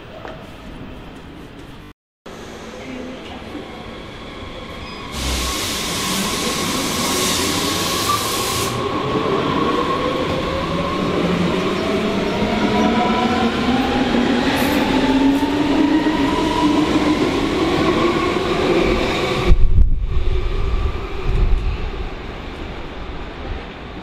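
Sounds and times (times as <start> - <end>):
hiss of air: 5.1 - 8.8.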